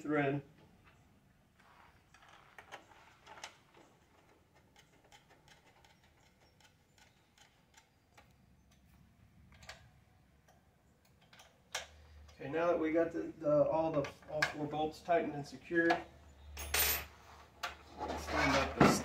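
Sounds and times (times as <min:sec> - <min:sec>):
small metal hardware clicking: 0:04.2 - 0:12.4.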